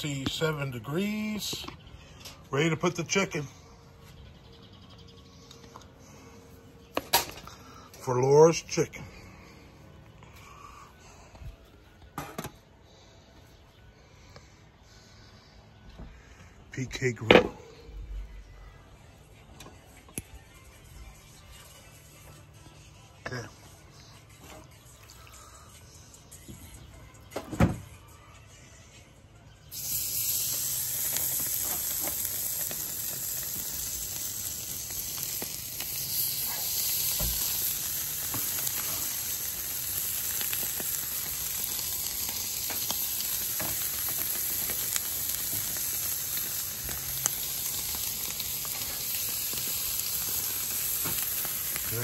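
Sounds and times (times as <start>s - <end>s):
chicken sizzling on grill: 0.0s - 3.5s, 29.5s - 52.0s.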